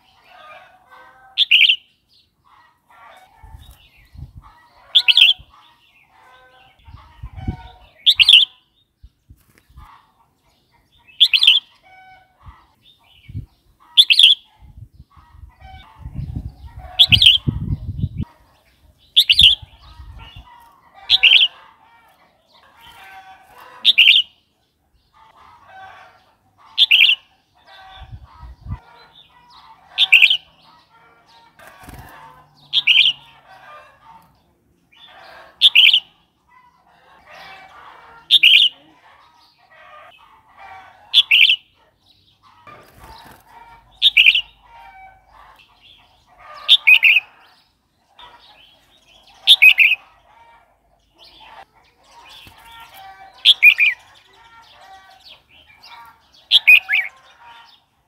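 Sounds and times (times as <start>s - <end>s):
bird singing: 1.4s - 2.4s, 7.8s - 9.2s, 10.9s - 11.8s, 12.8s - 14.5s, 16.6s - 20.5s, 23.8s - 25.2s, 32.5s - 33.3s, 35.0s - 36.1s, 44.0s - 44.7s, 45.6s - 50.2s, 51.0s - 57.9s.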